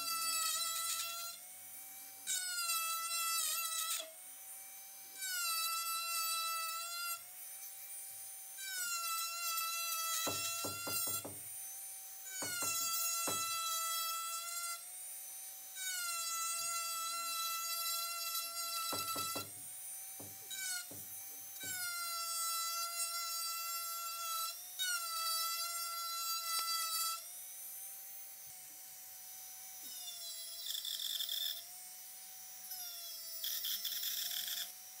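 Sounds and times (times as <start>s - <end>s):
power tool motor whining: 0.0s - 35.0s
knocks: 10.2s - 11.5s, 12.4s - 13.6s, 18.9s - 19.6s, 20.2s - 21.8s.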